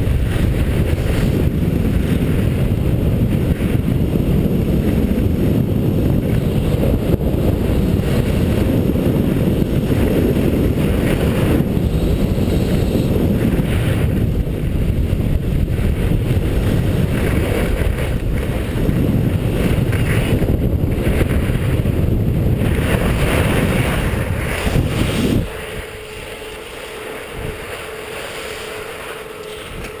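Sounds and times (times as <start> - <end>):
faint steady hum: 0.0 - 30.0
skis scraping over snow: 0.0 - 30.0
wind buffeting microphone: 0.0 - 30.0.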